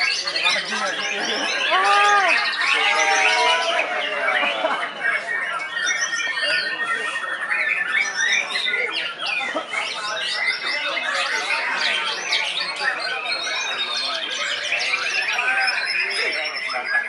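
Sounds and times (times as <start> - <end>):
birds singing whistles and trills: 0.0 - 17.0.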